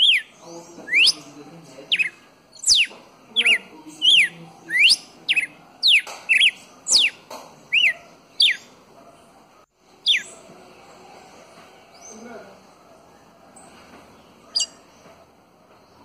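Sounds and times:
bird singing whistled notes: 0:00.0 - 0:08.7, 0:10.0 - 0:10.3, 0:14.5 - 0:14.8.

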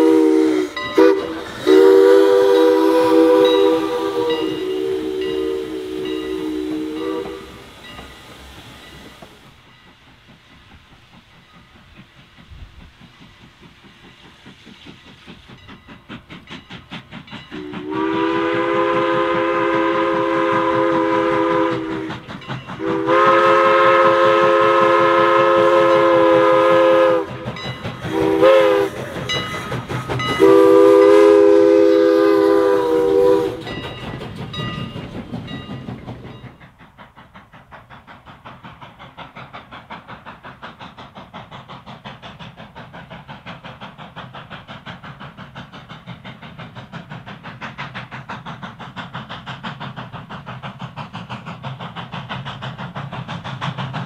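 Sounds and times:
chime steam whistle blasts: 0:00.0 - 0:10.1, 0:16.7 - 0:35.8
steam locomotive exhaust chuffs: 0:00.0 - 0:54.0.

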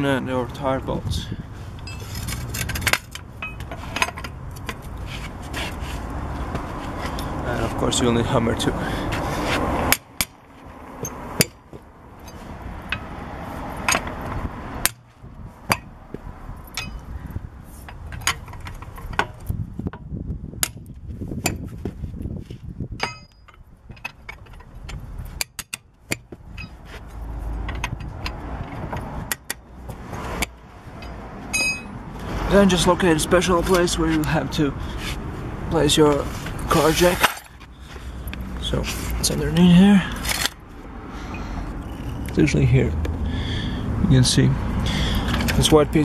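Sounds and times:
wrench clinking and rattling: 0:01.8 - 0:04.8, 0:16.6 - 0:17.1, 0:23.0 - 0:26.8, 0:30.9 - 0:32.0
hammer striking metal wrench: 0:16.7 - 0:17.0, 0:23.0 - 0:24.2, 0:30.4 - 0:32.0.

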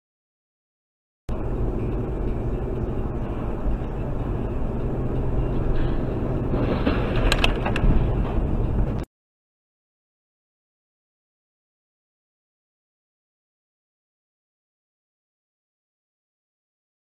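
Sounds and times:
car road and engine rumble: 0:01.3 - 0:09.1.

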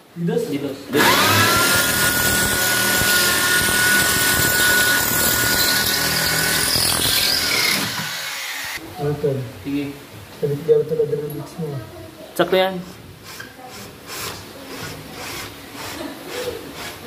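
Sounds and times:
power tool whine: 0:00.9 - 0:08.8.

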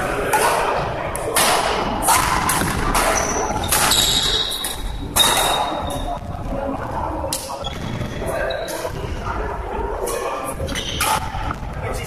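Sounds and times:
murmur of voices: 0:00.0 - 0:12.0
badminton racket hits: 0:01.4 - 0:06.2.

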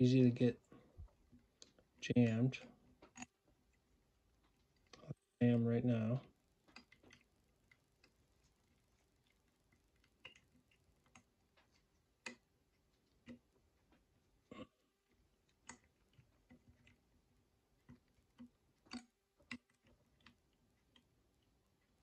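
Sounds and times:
small metallic clicks and taps: 0:03.0 - 0:03.8, 0:06.6 - 0:08.2, 0:17.8 - 0:21.1.

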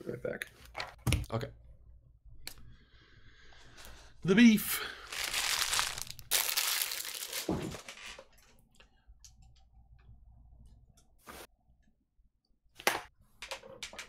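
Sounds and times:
packaging crinkling: 0:05.0 - 0:08.2.

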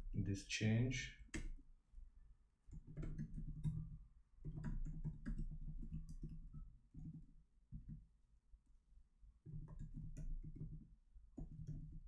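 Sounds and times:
computer keyboard typing: 0:02.7 - 0:08.0, 0:09.5 - 0:12.0.

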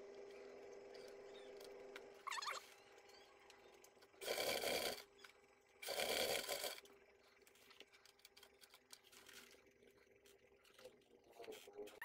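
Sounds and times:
faint motor hum: 0:00.0 - 0:12.0
sewing machine stitching: 0:04.2 - 0:05.1, 0:05.8 - 0:06.8.

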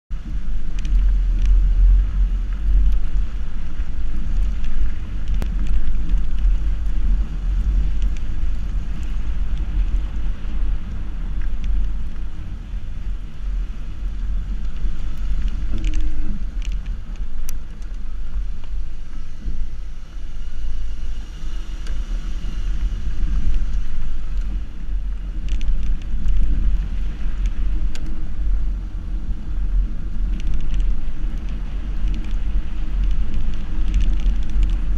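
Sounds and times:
wind buffeting microphone: 0:00.1 - 0:34.9
small clicks: 0:00.7 - 0:10.0, 0:14.5 - 0:18.8, 0:25.4 - 0:28.2, 0:30.2 - 0:34.9.

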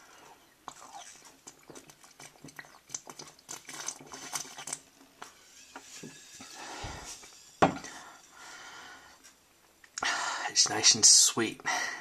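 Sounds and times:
glass bottle set down: 0:07.6 - 0:07.9.

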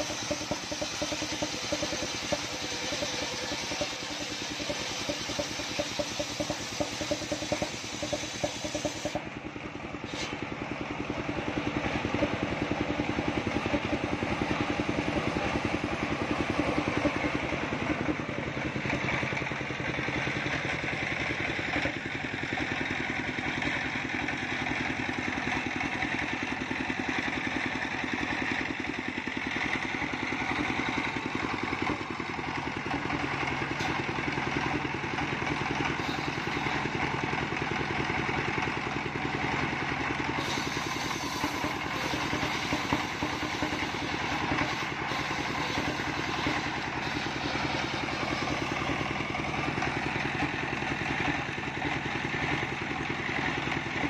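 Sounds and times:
circular saw ripping wood: 0:00.0 - 0:09.2, 0:40.4 - 0:49.5
engine running steadily: 0:00.0 - 0:54.0.

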